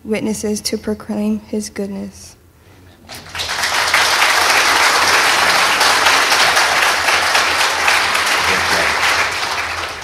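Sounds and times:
congregation applauding: 3.1s - 10.0s.

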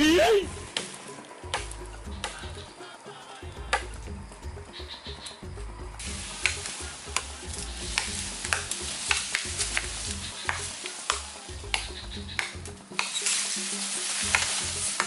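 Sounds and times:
crackling of splitting fibres: 0.5s - 4.1s, 4.8s - 15.0s
bamboo cracking and snapping: 0.6s - 2.6s, 6.0s - 15.0s.

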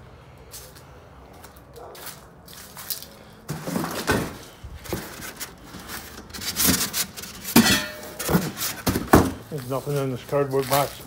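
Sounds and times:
junk knocking and thumping: 7.5s - 9.5s.

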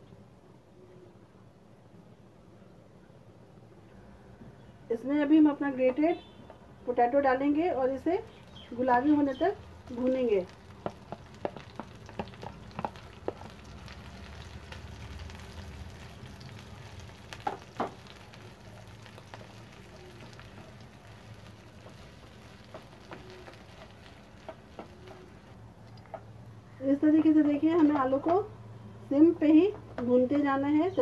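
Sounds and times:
potato sizzling in pan: 7.5s - 28.3s
spatula scraping and tapping pan: 10.8s - 13.5s.

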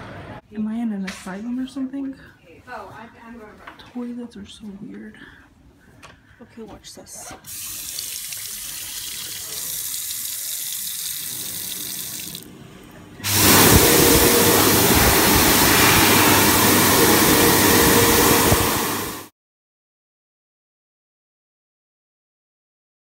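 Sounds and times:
water running onto hand: 7.5s - 12.5s
hand dryer air rush: 13.2s - 19.3s.

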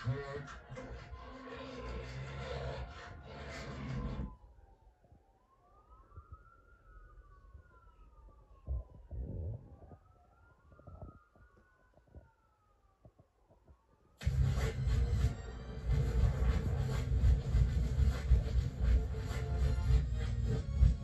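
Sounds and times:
faint siren wailing: 0.0s - 21.0s
loud music: 14.2s - 21.0s.

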